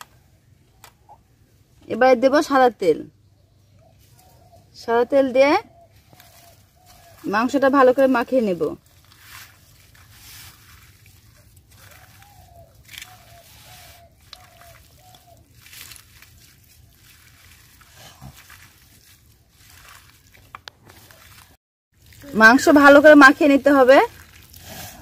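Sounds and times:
wet squishing of kneaded meat: 5.8s - 25.0s.

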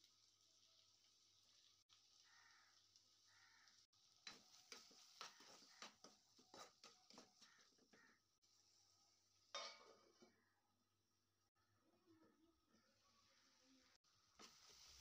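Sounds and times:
spatula scraping pan: 4.3s - 8.1s
lid clattering on pan: 9.6s - 10.0s.

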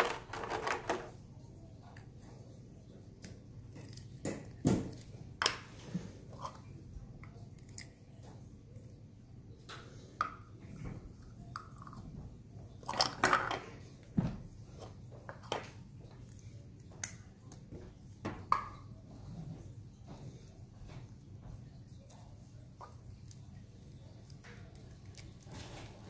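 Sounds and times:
plastic parts clattering: 0.0s - 1.2s.

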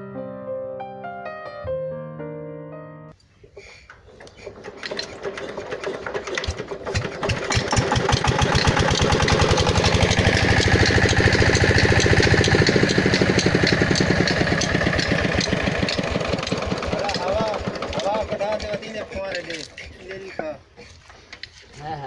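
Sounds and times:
diesel engine running: 4.3s - 19.9s.

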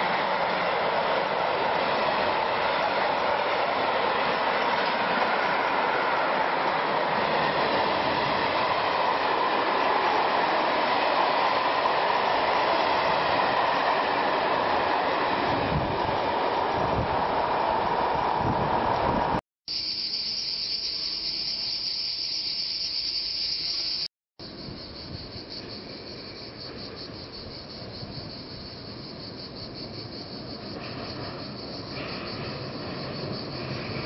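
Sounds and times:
steel wheels rolling on rail: 0.0s - 19.4s, 24.6s - 34.0s.

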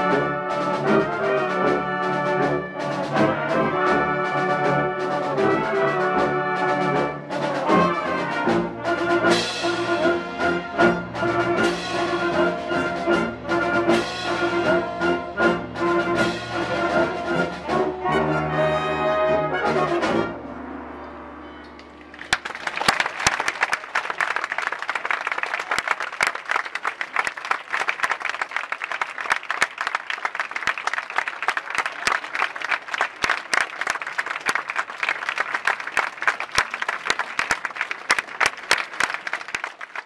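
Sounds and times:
brass band chord: 0.0s - 22.0s
audience applause: 21.8s - 40.0s.

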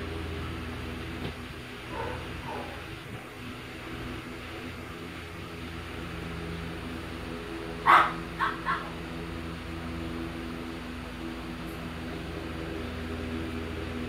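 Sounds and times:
low hum: 0.0s - 14.0s
dog barking: 1.9s - 2.8s, 7.8s - 9.0s.

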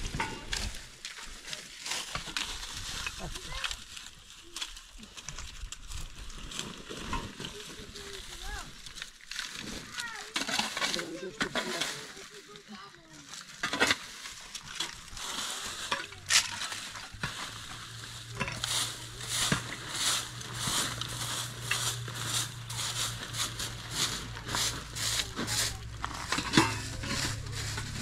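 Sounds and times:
rhythmic scraping strokes: 15.6s - 28.0s.

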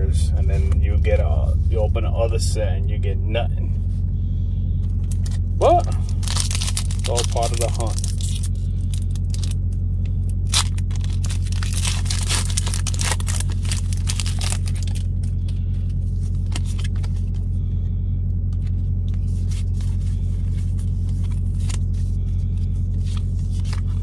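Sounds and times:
idling truck drone: 0.0s - 24.0s
foil wrapper crinkling: 5.0s - 9.7s, 10.3s - 17.4s, 19.2s - 24.0s
cards shuffled and flicked: 16.2s - 17.4s, 18.5s - 22.1s, 22.9s - 24.0s.

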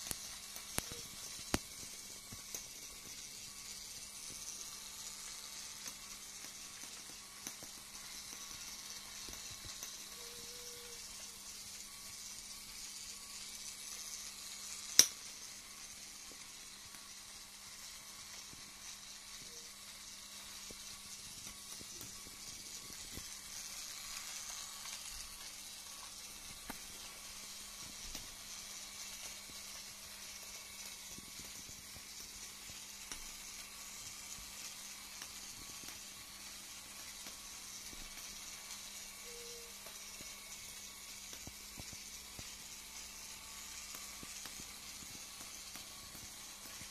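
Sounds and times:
toy train motor whirring: 0.0s - 46.9s.

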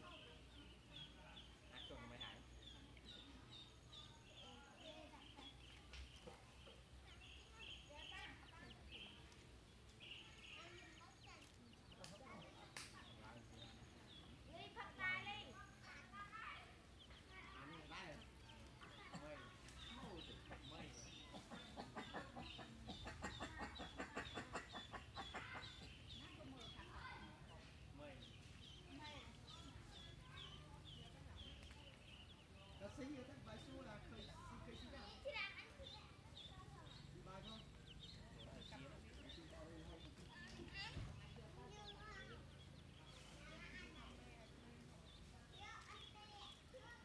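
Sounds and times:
chick peeping: 16.8s - 35.0s, 35.6s - 46.6s.

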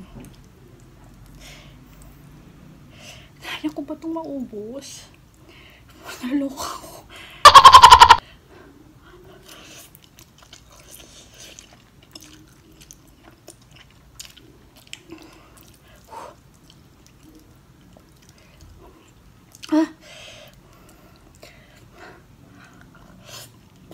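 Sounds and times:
person chewing and slurping noodles: 9.4s - 19.7s.

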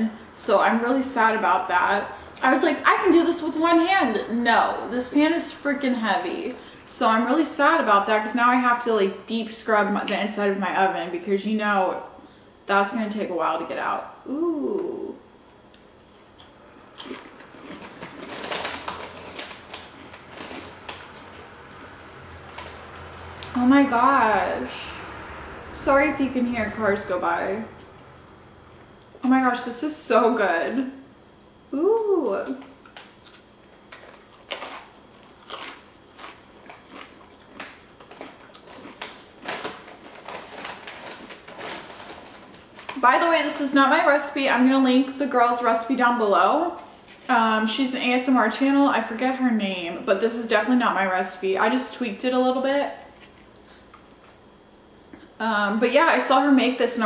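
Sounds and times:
chewing tortilla chip crunches: 15.7s - 23.5s, 32.8s - 43.0s.

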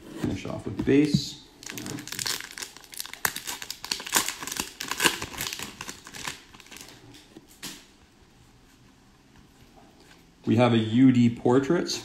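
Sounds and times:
foil wrapper crinkling: 1.6s - 7.3s.

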